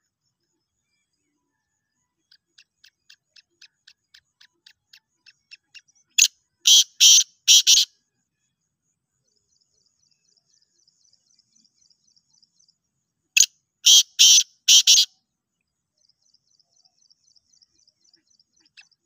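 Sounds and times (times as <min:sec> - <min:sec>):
harsh bird calls: 0:02.8 - 0:07.9, 0:13.4 - 0:15.1.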